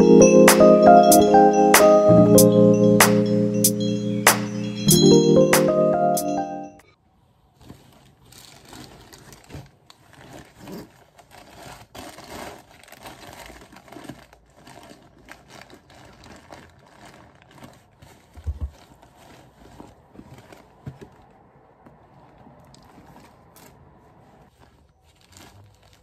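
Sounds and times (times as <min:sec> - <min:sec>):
backpack fabric rustling: 0:24.4 - 0:26.0.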